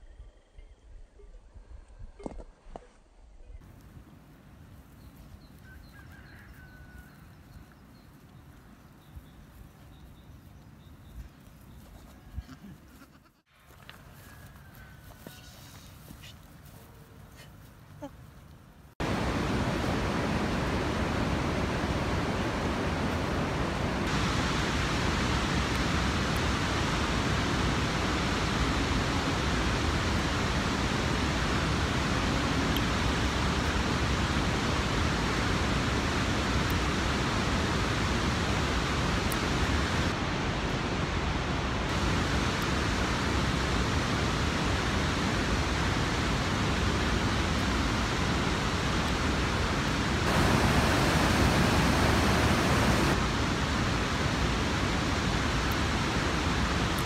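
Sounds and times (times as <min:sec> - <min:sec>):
steady rushing noise: 0:39.4 - 0:57.0.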